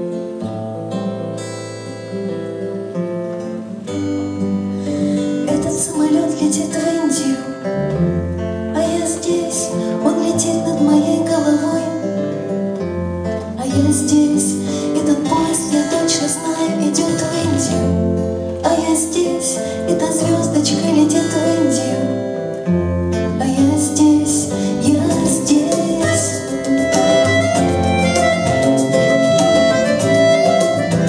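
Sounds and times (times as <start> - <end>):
acoustic guitars: 0.0 - 31.0
bass guitar: 7.6 - 8.8, 20.3 - 31.0
button accordion: 26.0 - 31.0.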